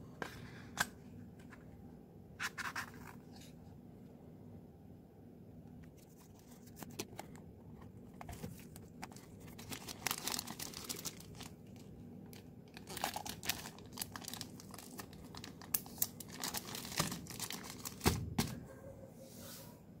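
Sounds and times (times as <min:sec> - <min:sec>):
plastic bag crinkling: 0:08.6 - 0:18.3.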